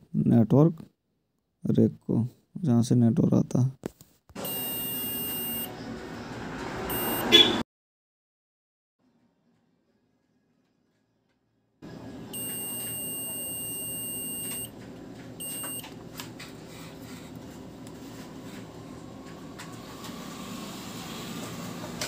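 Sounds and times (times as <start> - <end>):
multimeter beeping: 4.4 - 5.7, 6.9 - 7.6, 12.3 - 14.8, 15.4 - 16.0.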